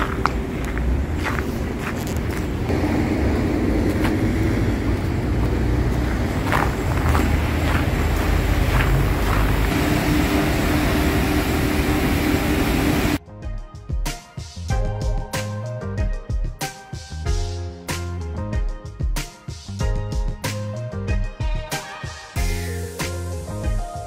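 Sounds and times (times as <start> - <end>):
faint footsteps: 0.0 - 10.0
car wash machinery rumbling: 0.0 - 13.2.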